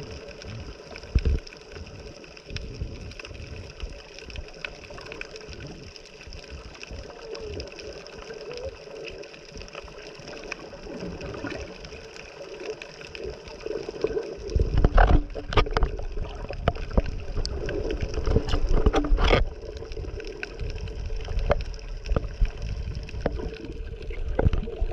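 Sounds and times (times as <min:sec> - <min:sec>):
muffled underwater gurgling: 0:00.0 - 0:24.9
sharp knocks and splashes: 0:14.7 - 0:17.0, 0:18.2 - 0:19.5.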